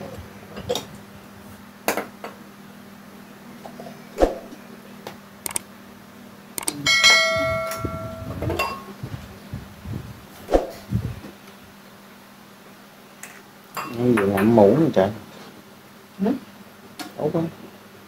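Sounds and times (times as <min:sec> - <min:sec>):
metal pot ringing: 0:06.8 - 0:08.8
tableware clinking: 0:06.9 - 0:08.9.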